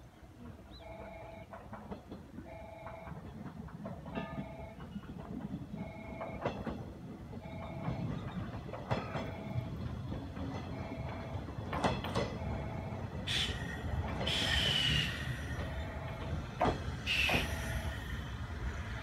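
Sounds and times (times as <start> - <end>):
train running rumble: 0.1 - 19.0
wheels clacking over rail joints: 0.3 - 19.0
high brake squeals: 13.3 - 15.6, 17.0 - 18.0.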